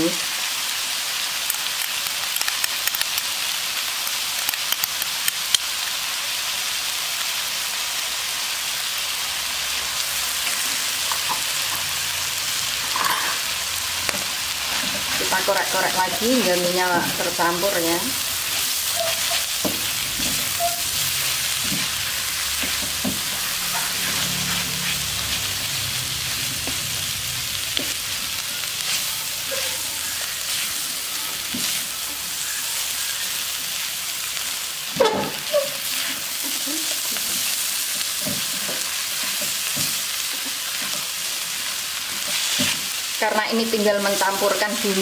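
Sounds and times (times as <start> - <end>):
food sizzling in a wok: 0.0 - 45.0
spatula scraping a pan: 18.5 - 25.5.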